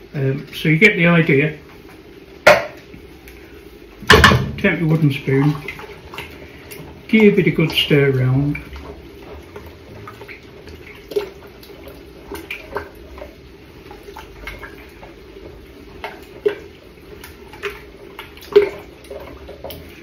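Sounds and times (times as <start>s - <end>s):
liquid sloshing in pot: 0.8s - 20.0s
spoon knocking against pot: 2.5s - 2.8s.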